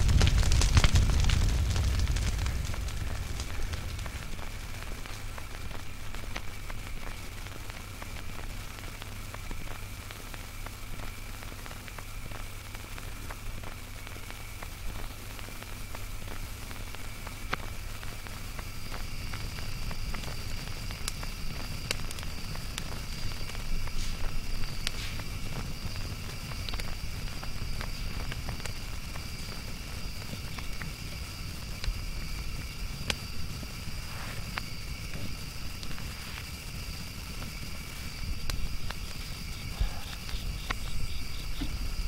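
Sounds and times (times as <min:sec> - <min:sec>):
low rumble: 0:00.0 - 0:08.5
small clicks and crackles: 0:00.0 - 0:42.0.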